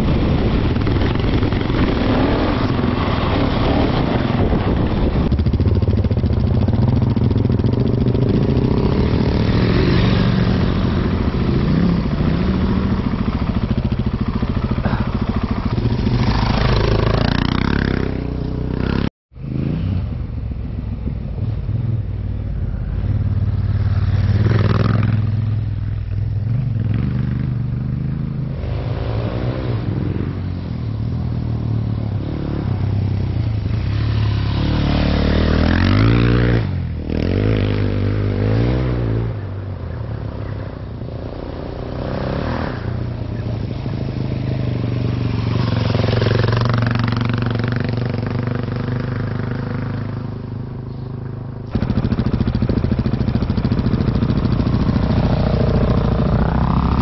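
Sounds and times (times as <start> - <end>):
steady rushing noise: 0.0 - 18.0
motorcycle engine running: 0.0 - 28.5, 42.9 - 57.0.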